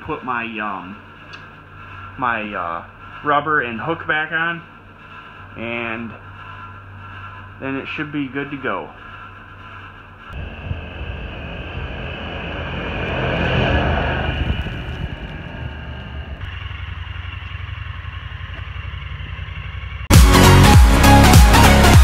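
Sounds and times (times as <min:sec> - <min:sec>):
vehicle engine driving past: 0:10.3 - 0:20.0
loud electronic music: 0:20.1 - 0:22.0.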